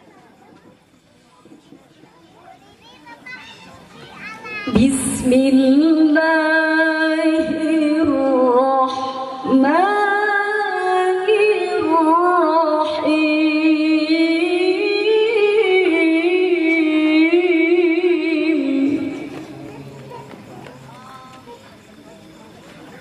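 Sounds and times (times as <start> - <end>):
woman reciting melodically: 4.6 - 20.3.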